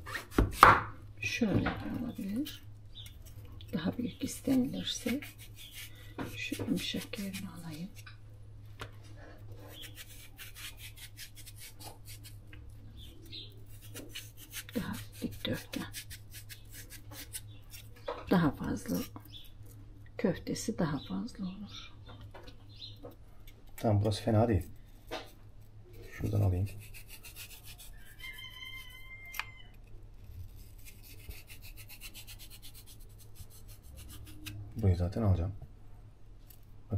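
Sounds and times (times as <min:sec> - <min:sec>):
knife scraping and cutting squash: 0:00.0 - 0:00.8, 0:01.8 - 0:08.1, 0:09.5 - 0:12.4, 0:13.1 - 0:19.2, 0:24.1 - 0:34.6.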